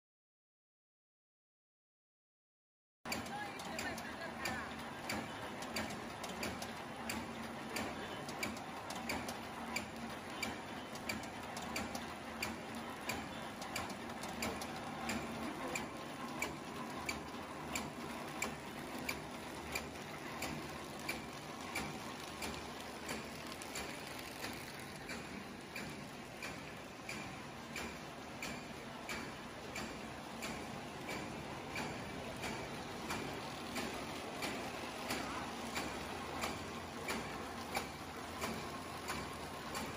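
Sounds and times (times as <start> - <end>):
machine mechanical hum: 3.1 - 39.9
regular machine clack: 3.1 - 39.9.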